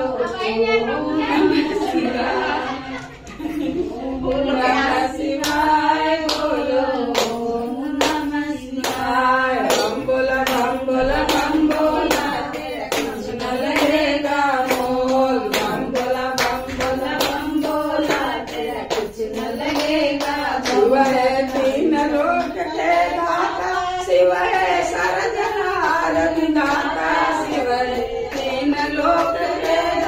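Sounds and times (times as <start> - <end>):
women singing devotional song: 0.0 - 30.0
hand claps: 5.3 - 22.6, 25.8 - 30.0.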